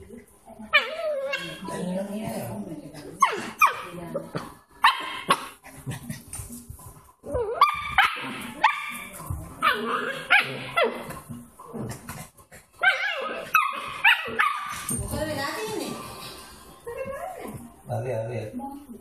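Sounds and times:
puppy yapping and whining: 0:07.3 - 0:09.0.

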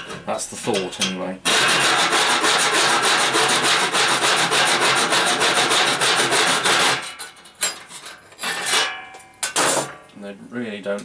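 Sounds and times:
hacksaw sawing sheet metal: 0:01.4 - 0:07.8.

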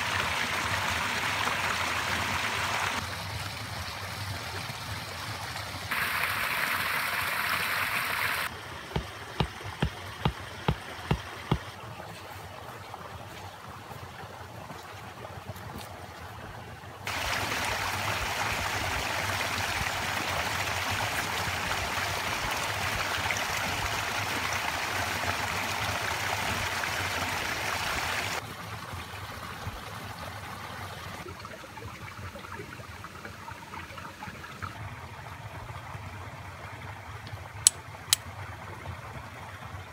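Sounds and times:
stream water rushing: 0:00.0 - 0:31.4
sharp knocks: 0:08.9 - 0:11.7.

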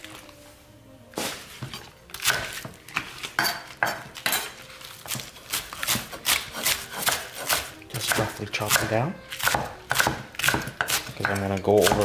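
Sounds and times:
knife chopping on wooden board: 0:03.4 - 0:12.0.

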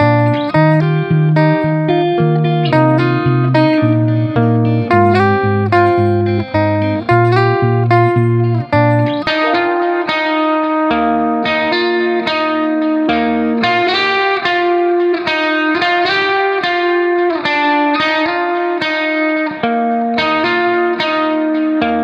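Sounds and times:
low bass line: 0:00.0 - 0:09.7
melody of quick notes: 0:00.0 - 0:14.0.

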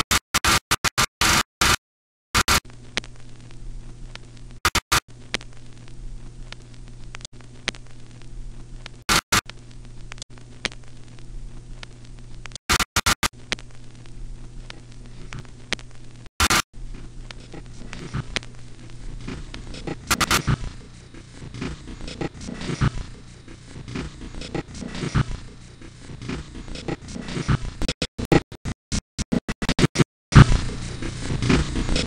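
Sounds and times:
crackling static: 0:02.4 - 0:28.7, 0:29.6 - 0:32.0
electrical hum: 0:02.7 - 0:27.9, 0:30.3 - 0:32.0
loud noise bursts: 0:19.6 - 0:23.7.

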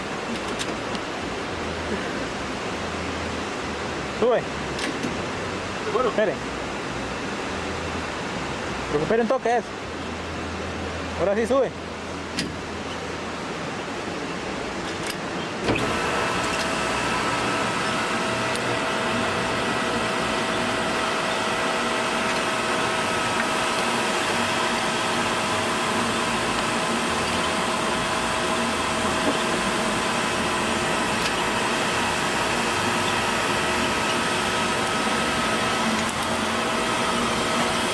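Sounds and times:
winch motor whining: 0:15.5 - 0:37.9.

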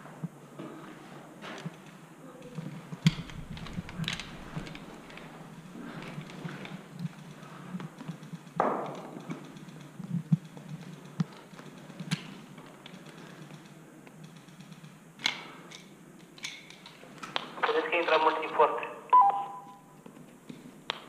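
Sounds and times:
airsoft gun clicks and knocks: 0:03.0 - 0:05.3, 0:07.8 - 0:17.5.

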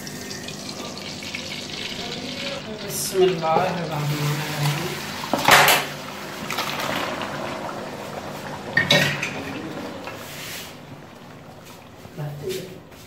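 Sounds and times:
cookware clattering in pan: 0:05.3 - 0:06.0, 0:08.8 - 0:10.2.

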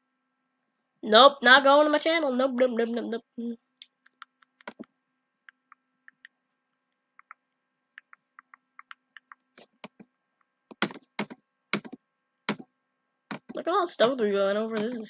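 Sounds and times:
computer mouse clicks: 0:04.0 - 0:04.9.

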